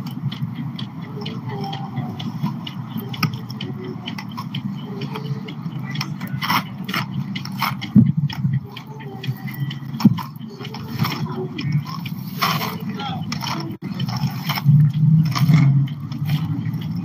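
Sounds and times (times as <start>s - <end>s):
clicks and scrapes: 10.0s - 17.0s.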